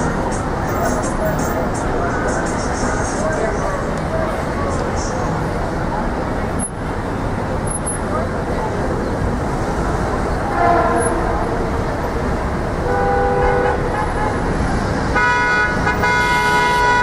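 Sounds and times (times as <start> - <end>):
traffic rumble: 0.0 - 17.0
vehicle horns honking: 10.5 - 11.6, 12.8 - 14.5, 15.1 - 17.0.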